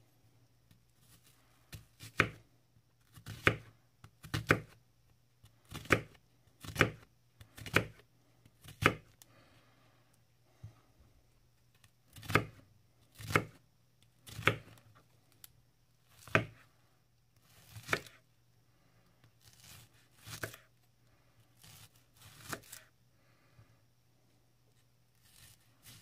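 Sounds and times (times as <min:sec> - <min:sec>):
knife slicing onion on wooden board: 0:01.1 - 0:02.4, 0:03.0 - 0:04.8, 0:05.6 - 0:09.2, 0:12.1 - 0:13.6, 0:14.2 - 0:14.9, 0:16.1 - 0:16.7, 0:17.4 - 0:18.2, 0:19.4 - 0:20.7, 0:21.6 - 0:22.9, 0:25.2 - 0:26.0.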